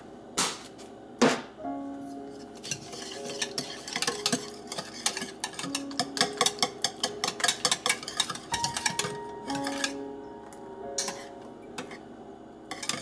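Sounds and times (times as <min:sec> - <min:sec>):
soft background music: 0:01.6 - 0:13.0
whisk clicking against bowl: 0:02.6 - 0:10.0, 0:12.7 - 0:13.0.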